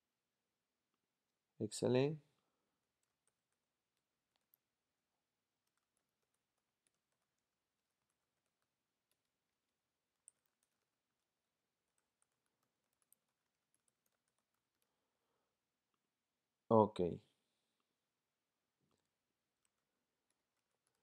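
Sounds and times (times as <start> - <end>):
keyboard typing clicks: 10.2 - 11.2, 11.9 - 14.9, 19.6 - 21.0.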